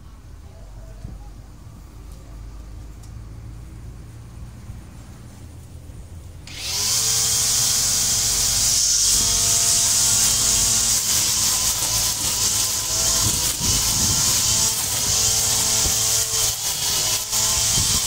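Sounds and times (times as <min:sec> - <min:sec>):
brush cutter engine whining: 0:06.5 - 0:18.0.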